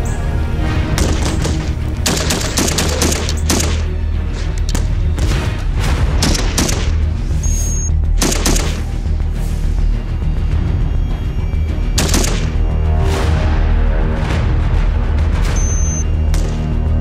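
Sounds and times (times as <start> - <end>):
low droning music: 0.0 - 17.0
high electronic beeping: 7.4 - 7.9, 15.5 - 16.1
automatic gunfire: 12.0 - 12.5.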